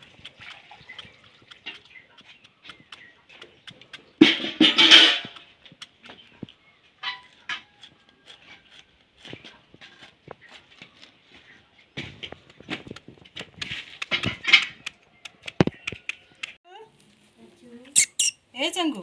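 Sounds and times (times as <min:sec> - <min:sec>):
rustle: 0:16.9 - 0:18.0.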